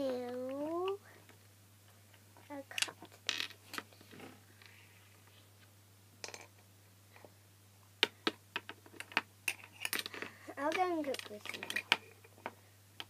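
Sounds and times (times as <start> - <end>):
toys clicking and tapping on wood: 9.9 - 12.6.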